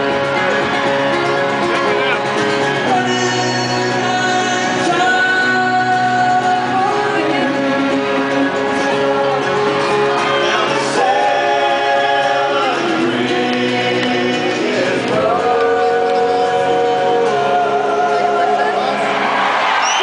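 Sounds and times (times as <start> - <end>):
men singing in harmony: 2.8 - 19.1.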